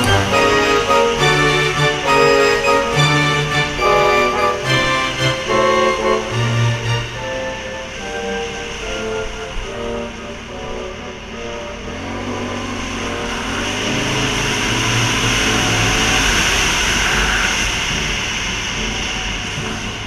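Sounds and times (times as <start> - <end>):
atv engine revving: 9.9 - 20.0.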